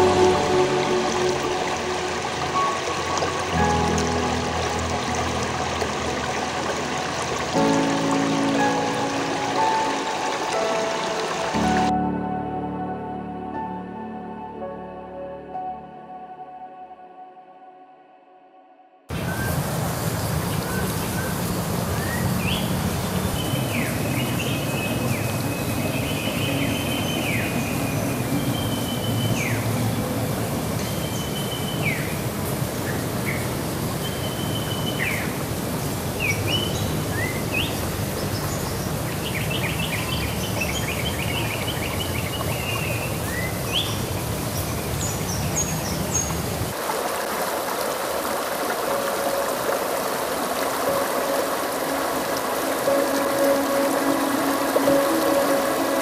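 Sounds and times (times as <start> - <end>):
rocky stream flowing: 0.0 - 11.9, 19.1 - 56.0
water rushing over rapids: 0.0 - 11.9, 19.1 - 56.0
birds whistling and trilling: 20.2 - 29.6, 30.8 - 32.2, 34.0 - 35.4, 36.2 - 44.1.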